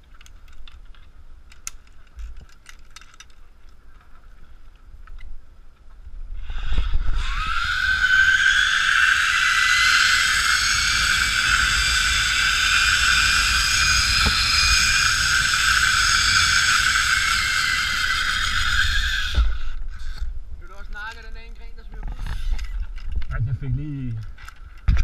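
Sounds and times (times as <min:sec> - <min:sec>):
zipline pulley whining on cable: 0:06.4 - 0:20.3.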